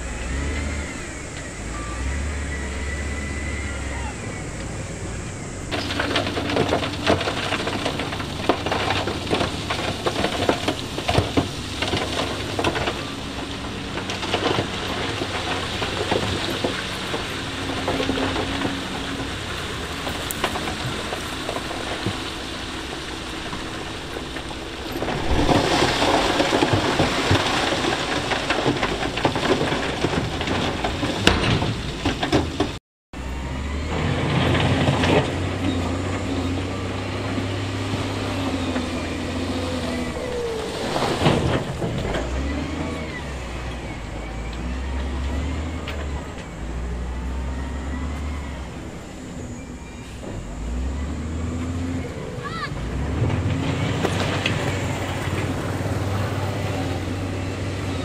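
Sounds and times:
deep steady engine note: 0.0 - 27.3, 33.1 - 58.0
heavy diesel machinery working: 0.0 - 58.0.

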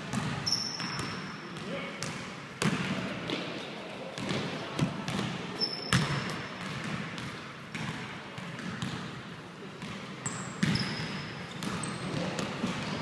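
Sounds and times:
basketball bouncing on wooden floor: 0.0 - 1.1, 4.2 - 9.1, 9.8 - 13.0
sneaker squeak: 0.1 - 1.4, 5.6 - 6.5, 10.2 - 13.0.

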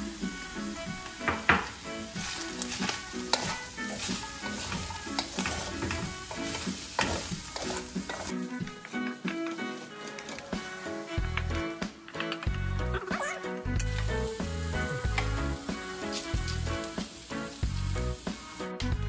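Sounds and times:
background music: 0.0 - 19.0
vegetables sizzling in oil: 0.0 - 19.0
wooden spatula scraping pan: 1.3 - 11.6.

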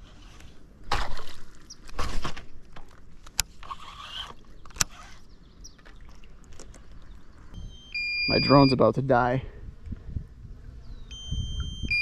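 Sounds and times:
water splashing at a kayak: 0.8 - 2.7.

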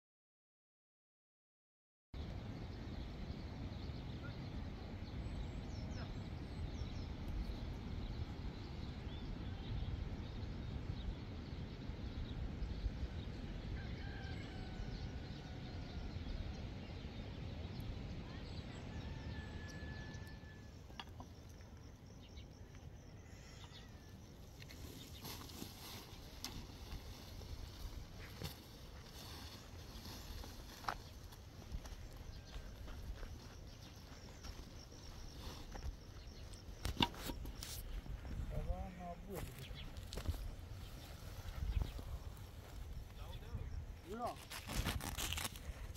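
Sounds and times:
small birds chirping: 2.6 - 13.3, 16.2 - 45.9
distant rooster crowing: 13.7 - 16.4, 18.7 - 21.0.

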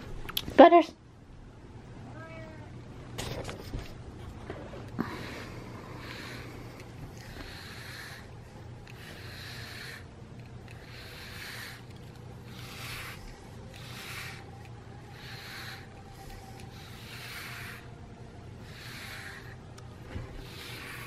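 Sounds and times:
brush through cat fur: 5.1 - 10.2, 10.8 - 21.0.

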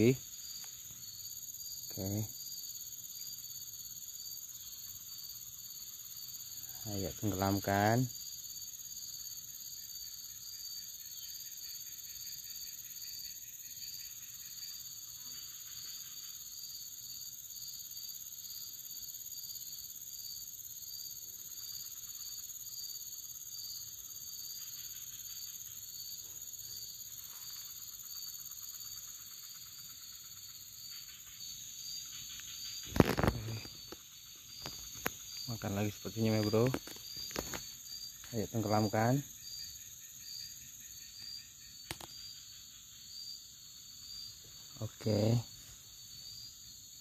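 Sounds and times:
insects shrilling: 23.2 - 46.6.

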